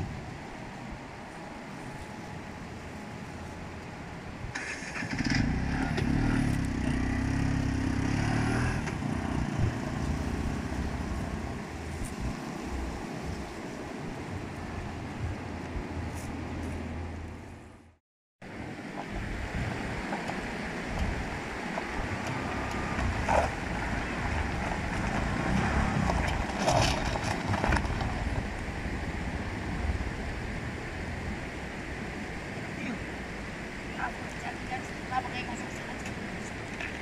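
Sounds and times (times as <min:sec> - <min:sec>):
mototaxi engine running: 0:04.5 - 0:13.6, 0:18.6 - 0:29.2
steady rushing background: 0:08.5 - 0:37.0.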